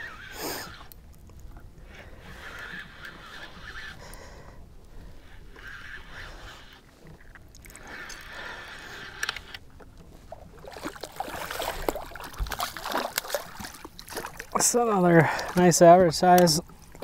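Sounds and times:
water sloshing against boat: 0.0 - 17.0
fish splashing: 10.2 - 14.6.

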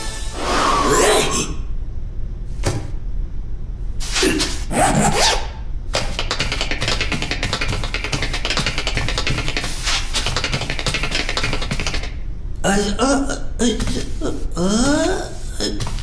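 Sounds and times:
tap-dance clicking taps: 6.0 - 12.2.

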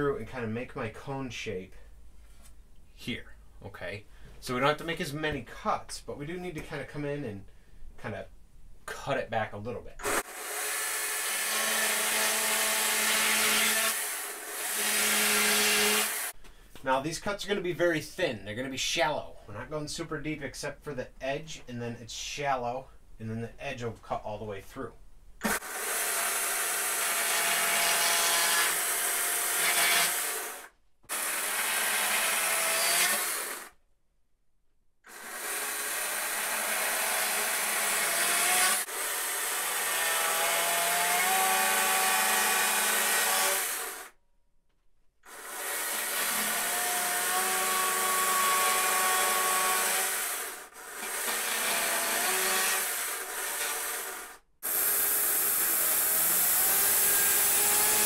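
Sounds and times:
chainsaw cutting wood: 10.0 - 16.4, 25.4 - 33.8, 35.1 - 44.2, 45.2 - 58.0.

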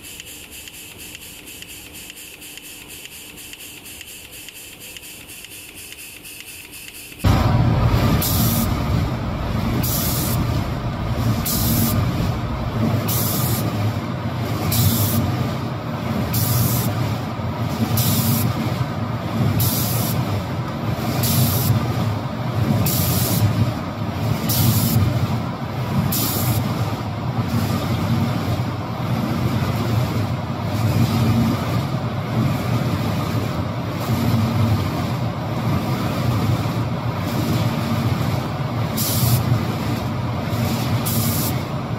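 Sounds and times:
machine humming: 7.2 - 16.3
spray guns hissing: 11.3 - 12.0, 12.8 - 13.8, 14.7 - 15.2.

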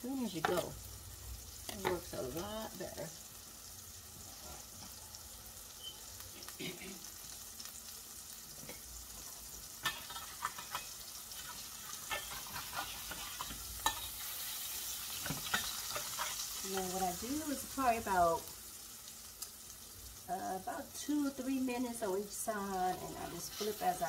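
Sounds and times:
burger patties sizzling in a skillet: 0.0 - 24.0
metal spatula scraping a pan: 4.2 - 5.1, 8.6 - 17.0, 22.8 - 24.0.

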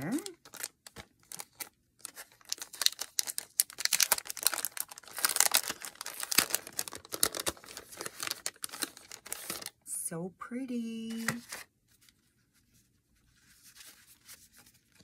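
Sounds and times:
cellophane crinkling: 0.0 - 9.8
papers rustling: 11.1 - 15.0.

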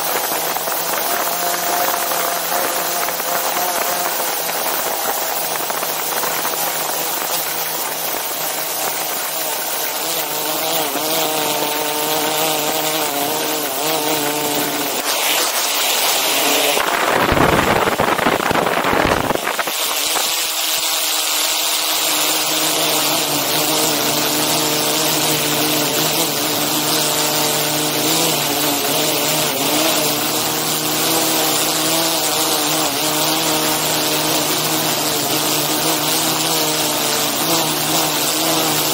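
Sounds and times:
drone propellers whining: 0.0 - 38.9
loud rushing burst: 14.6 - 20.6.

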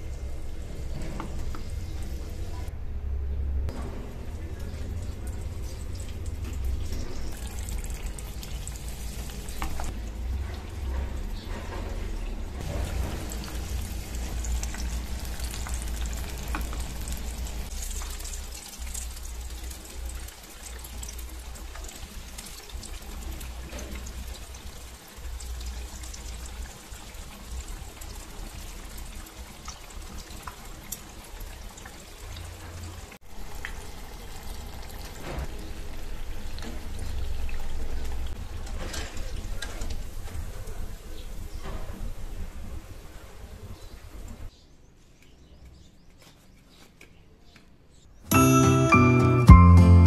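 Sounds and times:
deep-frying sizzle with crackles: 0.0 - 2.7, 3.7 - 44.5.

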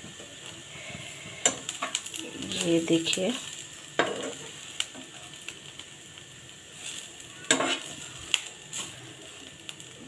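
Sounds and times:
onions sizzling in oil: 0.0 - 10.0
spatula scraping a pan: 4.0 - 5.3, 6.8 - 8.9.

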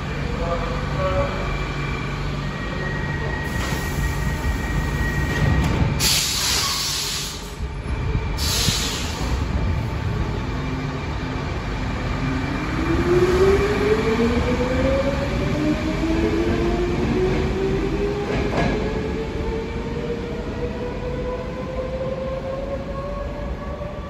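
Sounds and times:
wheels rumbling on rail: 0.0 - 24.0
air hisses: 6.0 - 7.6, 8.4 - 9.5.

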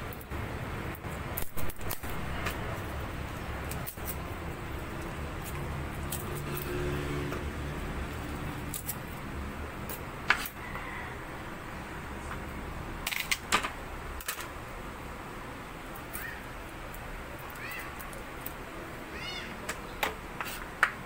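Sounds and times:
garlic peeling rustles and clicks: 0.0 - 10.6, 15.8 - 18.9, 19.5 - 21.0.

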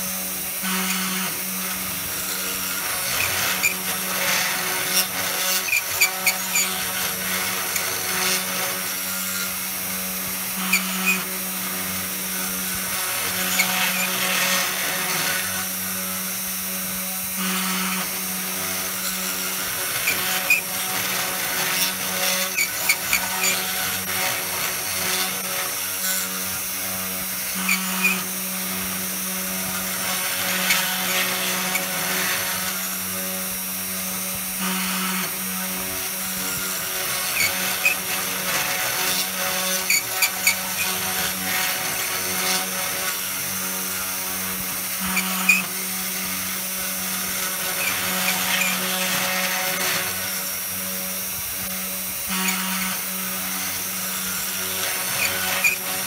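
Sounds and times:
router spindle humming: 0.0 - 56.0.

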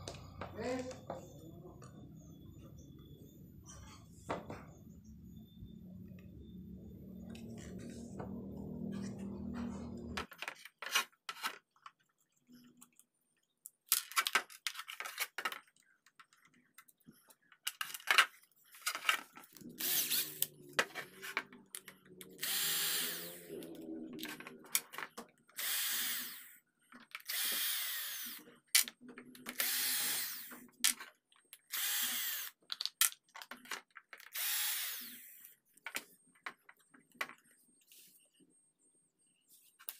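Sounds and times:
cordless drill bursts: 19.8 - 20.4, 22.4 - 23.5, 25.6 - 26.6, 27.2 - 28.4, 29.6 - 30.5, 31.7 - 32.5, 34.3 - 35.4.

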